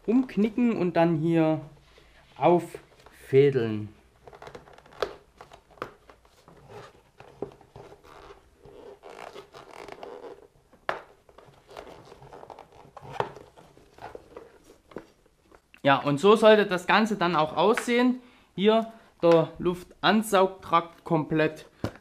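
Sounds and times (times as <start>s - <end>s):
rubber scraping against box: 6.3s - 10.5s, 11.3s - 15.2s.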